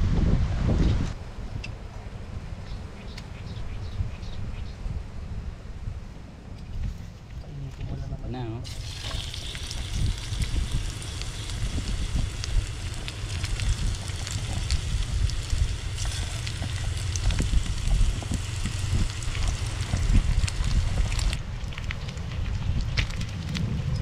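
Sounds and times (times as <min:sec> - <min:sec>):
bacon sizzling in a pan: 0:08.6 - 0:21.4
low rumble: 0:08.7 - 0:24.0.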